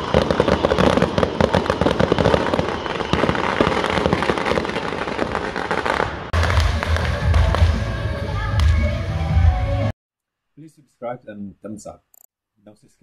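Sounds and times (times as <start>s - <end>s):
fireworks crackling bangs: 0.0s - 7.9s.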